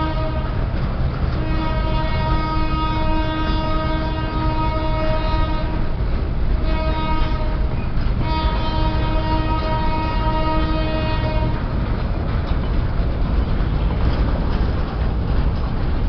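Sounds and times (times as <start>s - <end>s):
locomotive horn blasts: 0.0s - 0.8s, 1.4s - 5.9s, 6.6s - 11.7s
freight train rumbling past: 0.0s - 16.0s.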